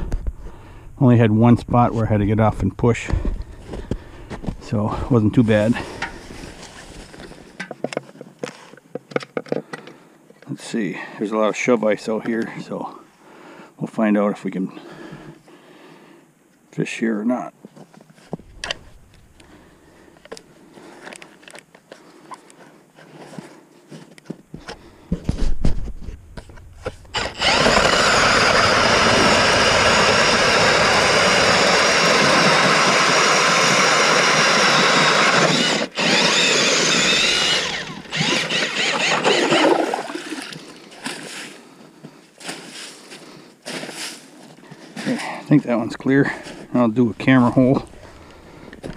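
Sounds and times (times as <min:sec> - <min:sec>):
drill driving ice auger: 0:26.8 - 0:40.4.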